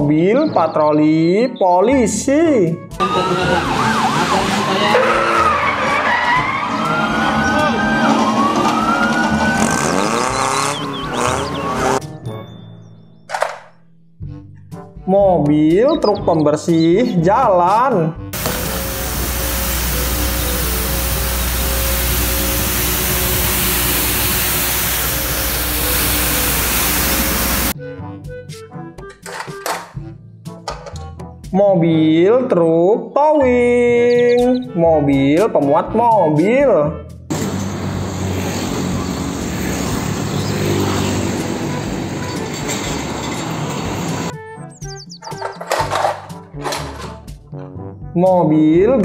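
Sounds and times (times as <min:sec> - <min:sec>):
music: 0:00.0 - 0:49.0
motorbikes passing: 0:03.0 - 0:12.0, 0:18.4 - 0:27.8, 0:37.3 - 0:44.3
road traffic noise: 0:03.0 - 0:12.0, 0:18.4 - 0:27.8, 0:37.3 - 0:44.4
truck engine driving past: 0:03.0 - 0:12.0, 0:18.4 - 0:27.8, 0:37.3 - 0:44.3
brooms sweeping cobblestones: 0:03.0 - 0:13.6, 0:18.4 - 0:27.8, 0:37.3 - 0:46.8
low engine rumble: 0:18.4 - 0:27.8.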